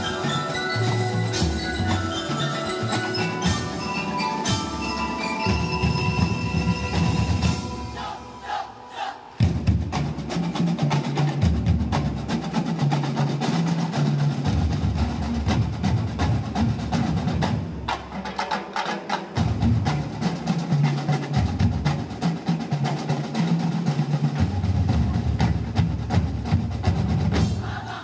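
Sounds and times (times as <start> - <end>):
rapid snare drum strikes: 9.4 - 28.0.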